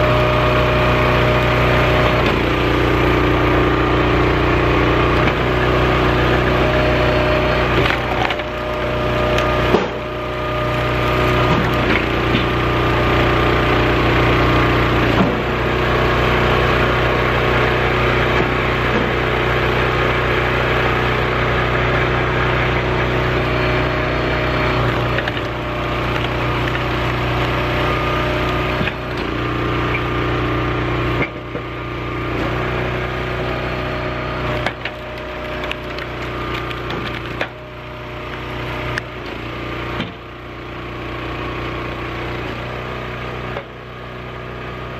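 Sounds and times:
small gas engine running: 0:00.0 - 0:44.9
wood cracking and splintering: 0:06.8 - 0:15.6, 0:24.6 - 0:29.6, 0:34.3 - 0:39.2.

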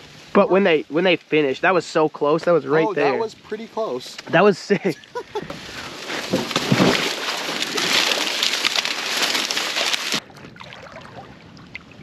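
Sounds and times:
water lapping: 0:05.0 - 0:12.0
water sloshing: 0:05.0 - 0:12.0
dry corn stalks rustling: 0:05.2 - 0:10.2.

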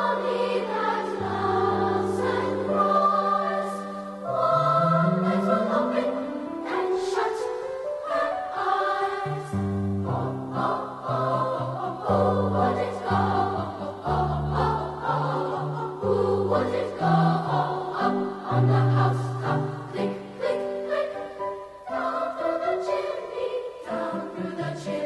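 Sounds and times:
choir singing sustained chords: 0:00.0 - 0:25.0.

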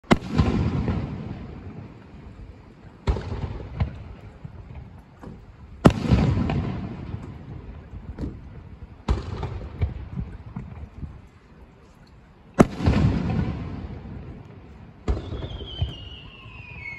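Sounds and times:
firework shells booming: 0:00.0 - 0:02.0, 0:03.0 - 0:08.4, 0:09.0 - 0:10.8, 0:12.6 - 0:14.4, 0:15.0 - 0:16.9
firework crackles: 0:00.0 - 0:11.0, 0:12.6 - 0:16.9.

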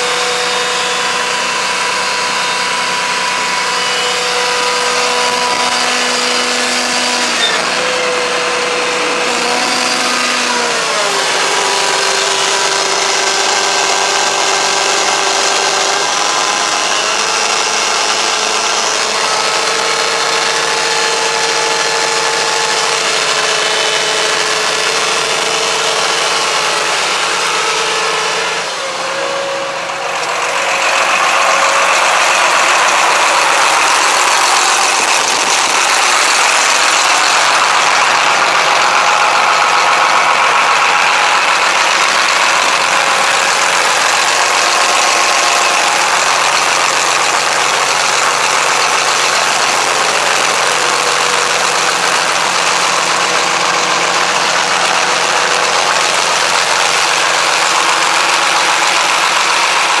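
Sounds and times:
tractor diesel engine humming: 0:00.0 - 1:00.0.

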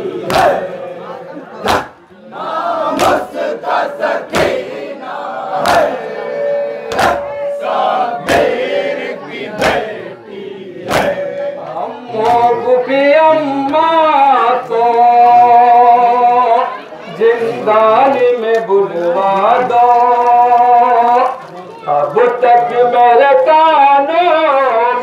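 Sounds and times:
crowd chanting: 0:00.0 - 0:25.0
chest beating slaps: 0:00.2 - 0:00.6, 0:01.6 - 0:02.0, 0:02.9 - 0:03.4, 0:04.2 - 0:04.7, 0:05.6 - 0:06.0, 0:06.9 - 0:07.4, 0:08.2 - 0:08.7, 0:09.5 - 0:09.9, 0:10.8 - 0:11.3
man singing through a microphone: 0:05.7 - 0:25.0.

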